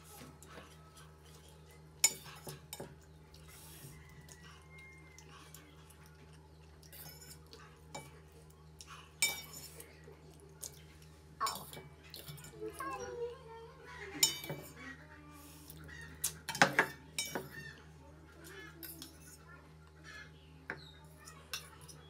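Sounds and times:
metal fork clinking on steel bowl: 9.2s - 9.7s, 14.2s - 14.7s, 16.5s - 17.5s.

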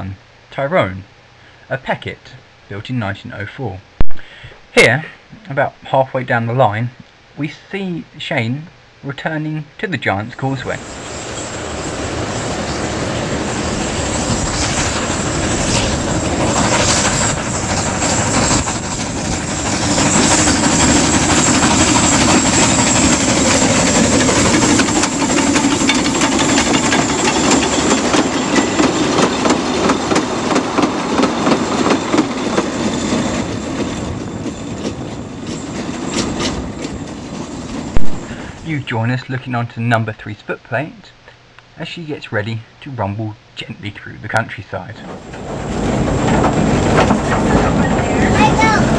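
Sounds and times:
steam train passing on rails: 10.5s - 39.2s, 44.8s - 48.9s.

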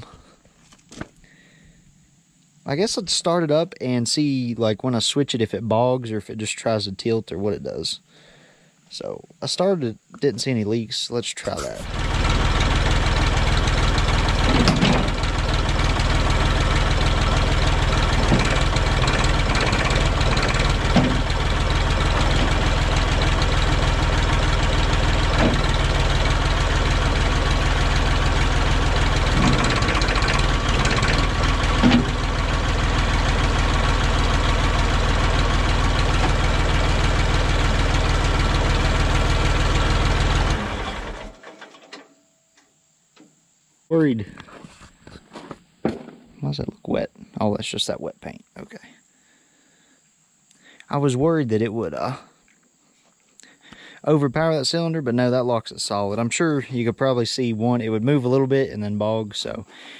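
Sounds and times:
tractor engine running: 11.4s - 42.1s.

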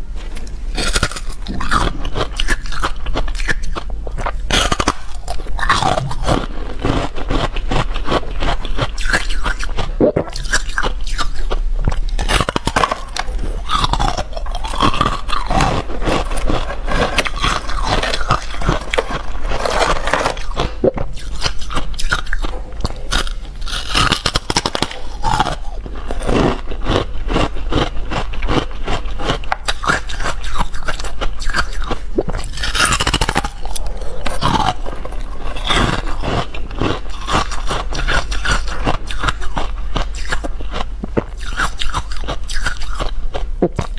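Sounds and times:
crunching ice: 0.8s - 11.3s, 12.0s - 43.9s.

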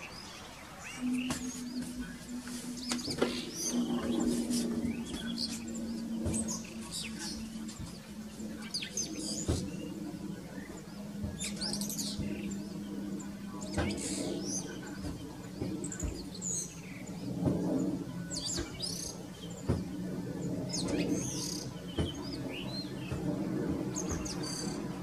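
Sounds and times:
bird chirping and warbling: 0.0s - 23.2s
steady low hum: 0.0s - 25.0s.

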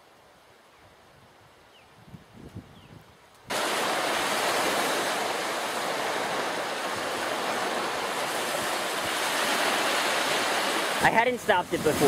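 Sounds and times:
small waves washing on shore: 3.5s - 12.0s.

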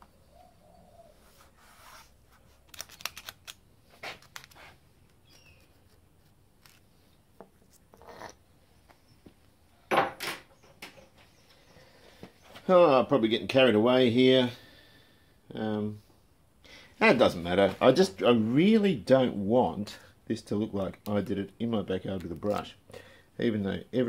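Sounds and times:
masking tape crinkling: 1.5s - 8.4s.

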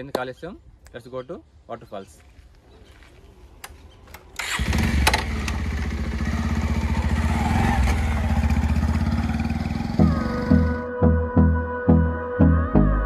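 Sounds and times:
motorcycle engine starting and running: 4.2s - 10.9s.

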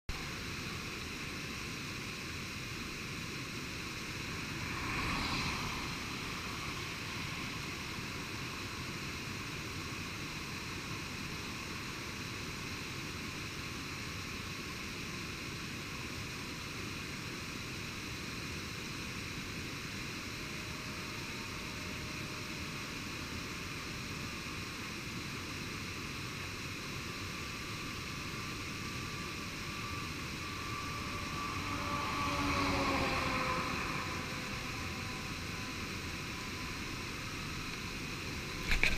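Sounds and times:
vehicle passing: 4.2s - 8.2s, 30.3s - 38.9s.

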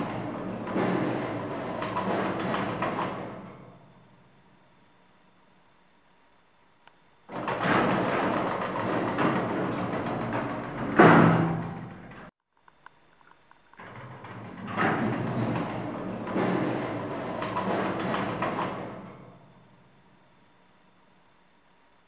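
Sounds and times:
lift doors slamming shut: 0.0s - 4.0s, 7.3s - 12.3s, 13.8s - 19.7s
lift doors rumbling open: 0.0s - 4.4s, 7.3s - 12.3s, 13.8s - 20.0s.

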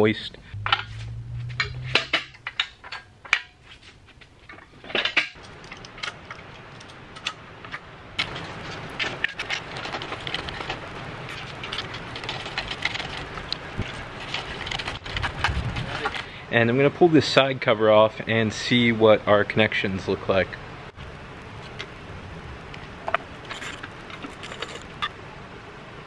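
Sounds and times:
metallic knocks: 0.6s - 3.6s
steel chain clinking: 8.2s - 15.0s, 21.0s - 25.2s.

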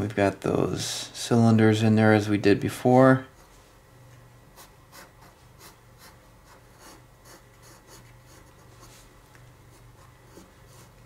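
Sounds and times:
pencil scratching on paper: 4.5s - 9.1s, 9.7s - 11.0s.

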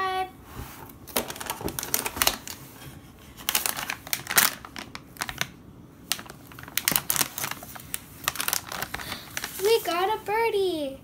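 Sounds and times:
plastic packet crinkling: 1.1s - 2.6s, 3.4s - 10.1s.

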